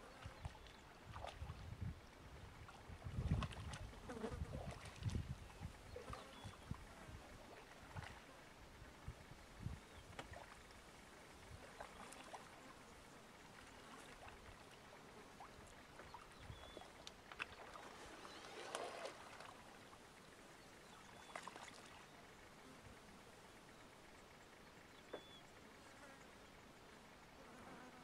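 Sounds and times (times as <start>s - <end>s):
animals splashing in mud: 0.1s - 1.7s, 2.7s - 6.7s, 7.5s - 8.3s, 11.6s - 12.6s, 13.4s - 19.9s, 21.1s - 22.2s.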